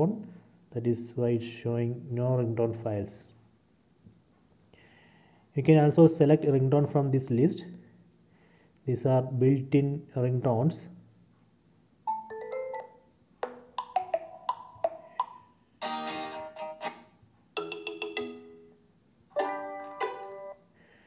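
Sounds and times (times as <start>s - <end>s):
phone ringtone snippets: 12.1s - 13.0s, 13.8s - 17.0s, 17.6s - 18.7s.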